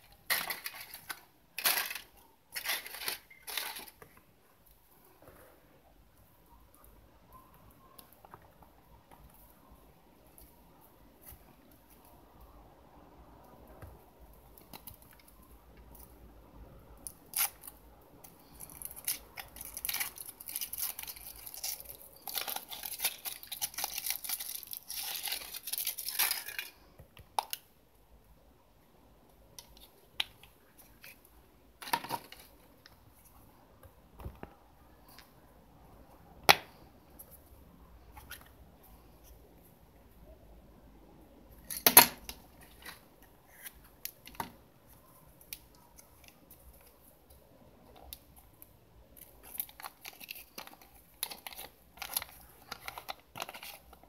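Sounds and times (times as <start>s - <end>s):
foil wrapper crinkling: 0.1s - 4.0s, 18.5s - 26.7s, 49.3s - 54.0s.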